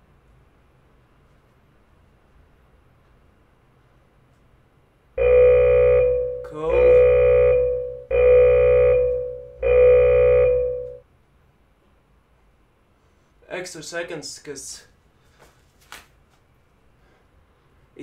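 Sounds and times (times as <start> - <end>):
interval timer alarm beeps: 5.2 - 11.0.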